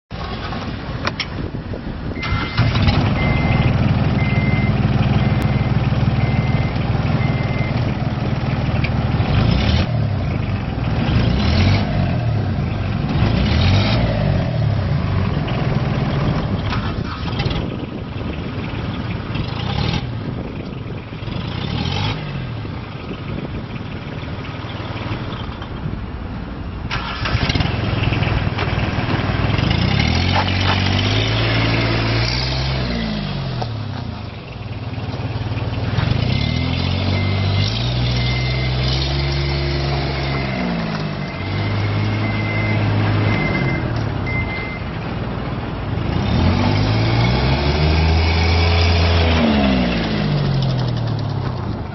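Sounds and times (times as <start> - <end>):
diesel engine revving: 1.8 - 25.9, 26.8 - 51.9
repeating high beep: 2.2 - 8.0, 37.0 - 38.9, 39.5 - 44.9.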